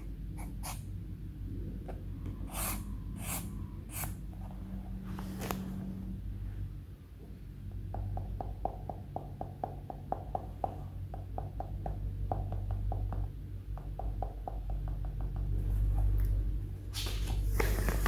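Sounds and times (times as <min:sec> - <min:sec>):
low steady hum: 0:00.0 - 0:18.0
rapid light tapping: 0:07.8 - 0:15.7.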